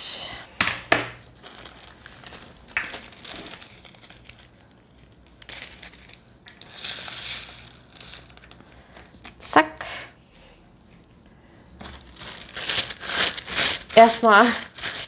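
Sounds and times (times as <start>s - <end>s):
plastic bags crinkling: 0.9s - 9.4s, 11.8s - 15.0s.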